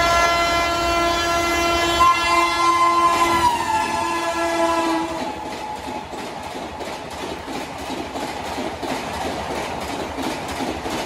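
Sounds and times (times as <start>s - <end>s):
locomotive air horn blast: 0.0s - 5.6s
train passing at speed: 0.0s - 11.0s.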